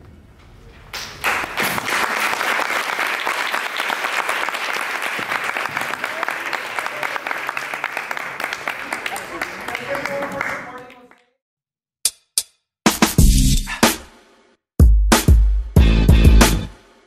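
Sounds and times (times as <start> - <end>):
audience applauding: 1.0 - 11.3.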